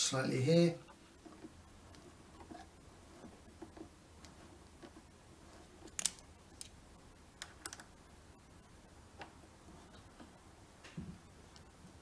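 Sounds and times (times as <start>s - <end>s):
allen key clicking in screw: 5.9s - 6.8s.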